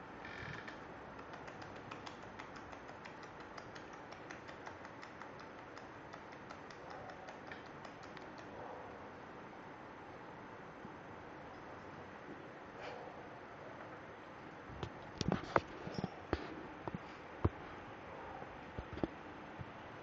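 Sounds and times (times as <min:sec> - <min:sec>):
puppy claws clicking on tile: 0:00.6 - 0:08.6.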